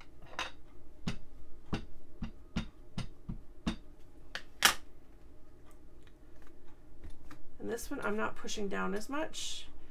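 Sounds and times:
ink pad tapping on plate: 1.0s - 3.8s.

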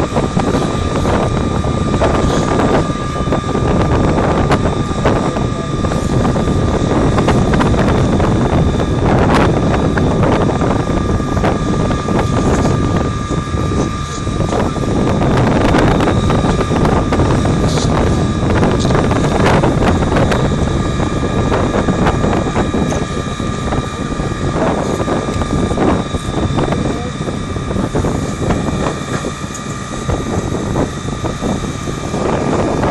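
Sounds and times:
hose jet spraying: 0.0s - 3.6s, 10.2s - 20.4s
fire engine pump whine: 0.0s - 32.9s.

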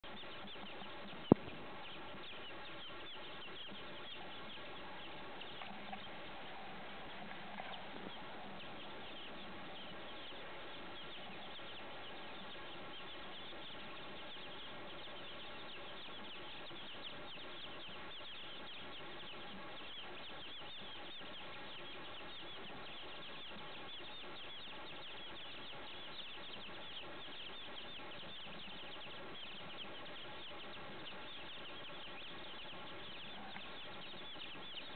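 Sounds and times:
baby chicks peeping: 0.0s - 34.9s.

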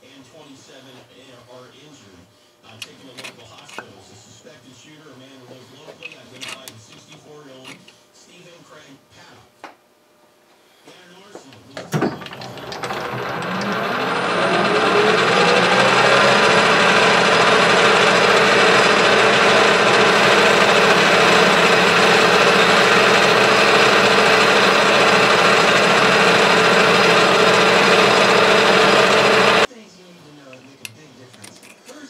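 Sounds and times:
lathe machine hum: 12.0s - 29.7s
lathe cutting hiss: 12.3s - 29.7s
rising tone: 12.7s - 29.7s.

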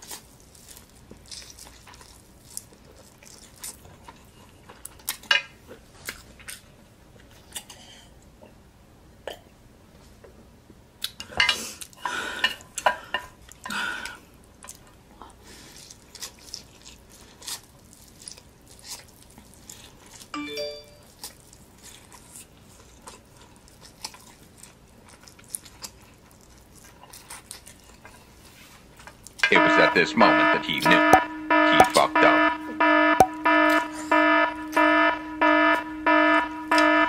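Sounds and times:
chime-like tones: 20.4s - 21.0s, 29.5s - 34.9s.

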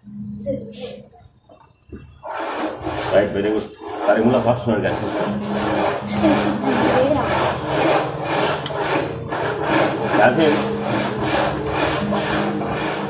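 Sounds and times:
acoustic guitar strumming: 4.1s - 13.0s.

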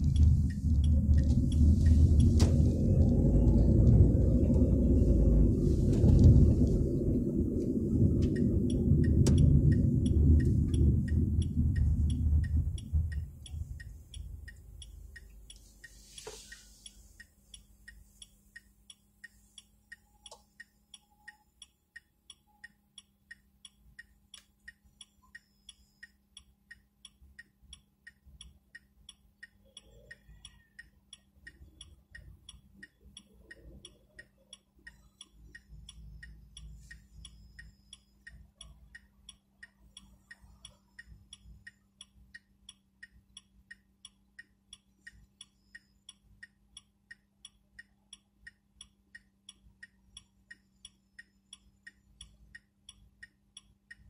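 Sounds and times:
car indicator ticking: 0.0s - 5.4s, 6.0s - 54.0s
low hum: 0.0s - 16.2s
low rumble: 0.0s - 16.2s.

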